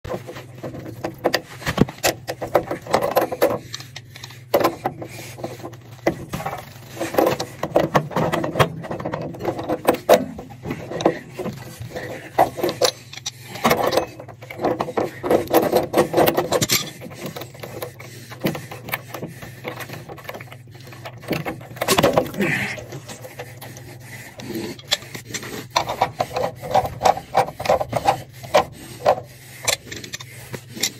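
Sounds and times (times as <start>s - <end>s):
steady low hum: 0.1s - 30.9s
pliers clicking and scraping on valve: 22.8s - 30.9s.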